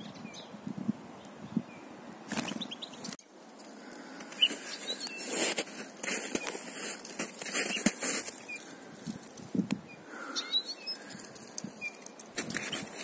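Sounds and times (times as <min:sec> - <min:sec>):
bird wings flapping against net: 0:02.3 - 0:02.6
faint high bird chirps: 0:09.8 - 0:11.1, 0:11.7 - 0:13.0.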